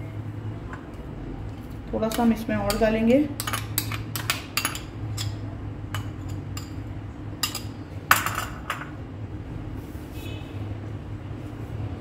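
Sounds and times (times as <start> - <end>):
spoon clinking against glass bowls: 2.1 - 6.8, 7.4 - 8.6.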